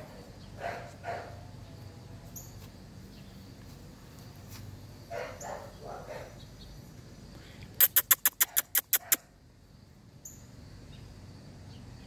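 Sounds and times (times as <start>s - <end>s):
dog barking: 0.6s - 1.5s, 5.1s - 6.4s, 8.4s - 9.3s.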